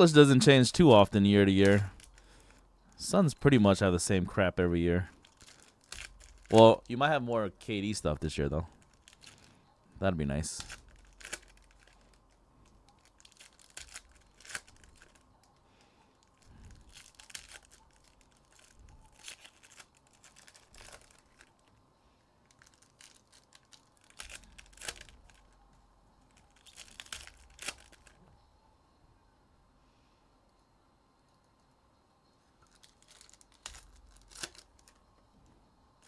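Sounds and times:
foil wrappers tearing and crinkling: 1.5 - 2.6, 5.2 - 6.9, 8.7 - 9.5, 10.5 - 15.2, 16.2 - 21.7, 22.4 - 25.6, 26.3 - 28.2, 32.6 - 35.0.

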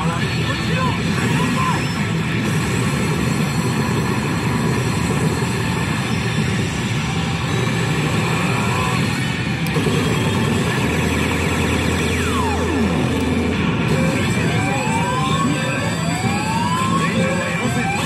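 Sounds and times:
din of gaming machines: 0.0 - 18.0
slot machine battle sound effects: 9.8 - 18.0.

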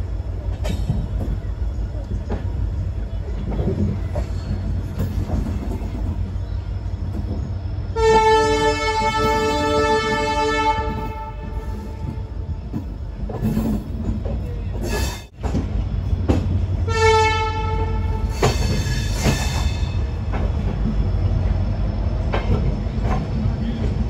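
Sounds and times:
train coach rumbling on rails: 0.0 - 24.0
clanks over rail joints: 0.4 - 6.3, 8.2 - 16.9, 17.8 - 21.6, 22.2 - 24.0
locomotive horn blast: 8.0 - 12.4, 16.8 - 18.3.

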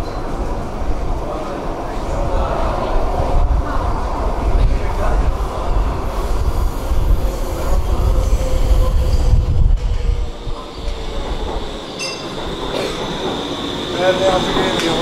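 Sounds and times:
train low rumble: 0.0 - 15.0.

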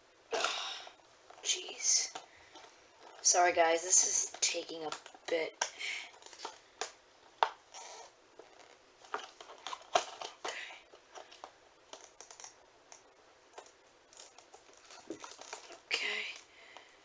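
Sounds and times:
plastic scrapes and clicks: 4.2 - 16.4
plastic packaging crinkling: 5.9 - 7.0, 7.7 - 12.6, 13.5 - 16.0.

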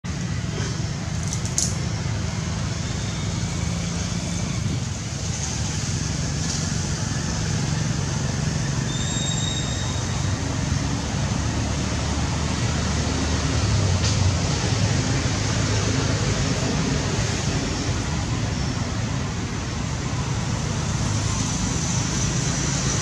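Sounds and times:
high-pitched whistle: 8.9 - 10.2.

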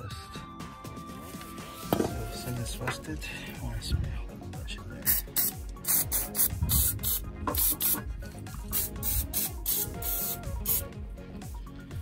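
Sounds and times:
aerosol spray hissing: 5.1 - 8.0, 8.6 - 10.9.

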